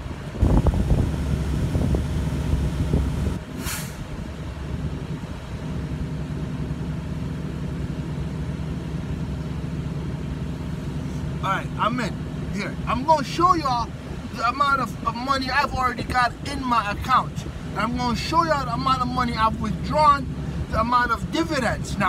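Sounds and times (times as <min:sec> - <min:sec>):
diesel truck engine idling: 0:00.0 - 0:22.0
brief hiss: 0:03.5 - 0:04.1.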